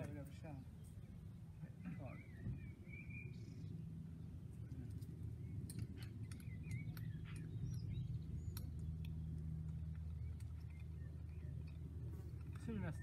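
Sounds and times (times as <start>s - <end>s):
birds chirping: 0.0s - 13.0s
sharp clicks: 4.6s - 13.0s.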